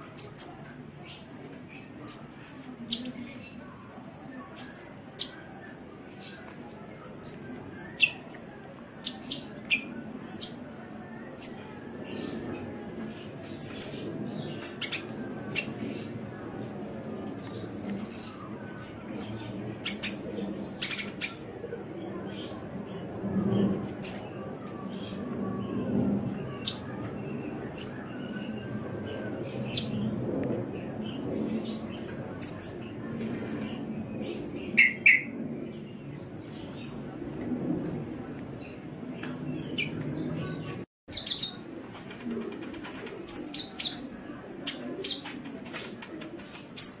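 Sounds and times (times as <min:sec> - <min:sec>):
faint low background noise: 0:00.0 - 0:47.0
small bird chirping: 0:00.2 - 0:00.7, 0:02.1 - 0:03.4, 0:04.6 - 0:05.4.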